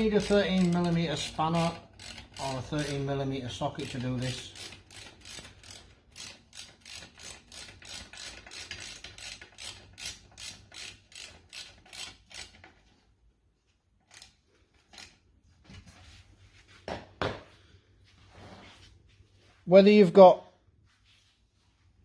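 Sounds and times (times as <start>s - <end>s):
ratchet wrench rasping: 0.0s - 13.0s, 14.0s - 15.2s.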